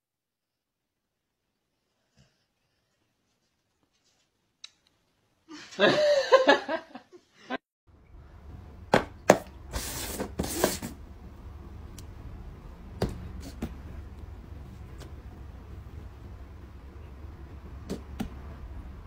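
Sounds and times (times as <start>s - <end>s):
low steady hum: 7.9s - 19.0s.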